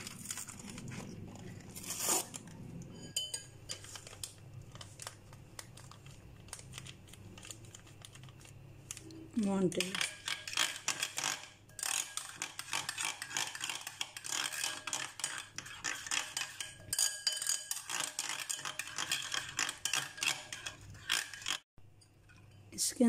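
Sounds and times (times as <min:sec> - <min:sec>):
spoon clinking and scraping glass bowl: 0:02.9 - 0:04.4, 0:09.8 - 0:22.8.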